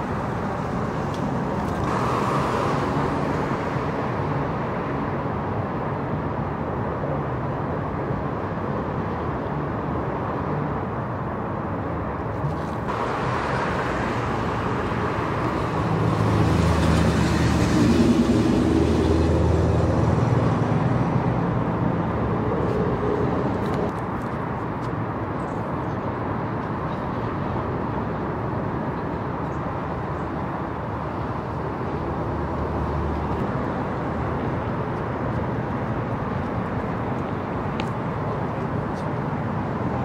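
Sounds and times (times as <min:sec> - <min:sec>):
traffic hum: 0:00.0 - 0:40.0
vehicle engine passing: 0:12.9 - 0:23.9.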